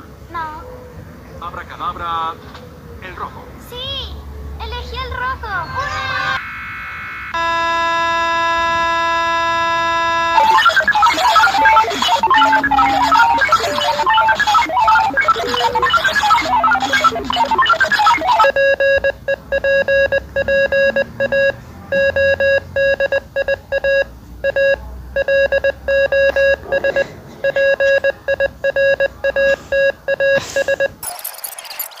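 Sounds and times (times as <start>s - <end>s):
electronic beeping tone: 9.6s - 32.0s
music: 10.4s - 18.5s.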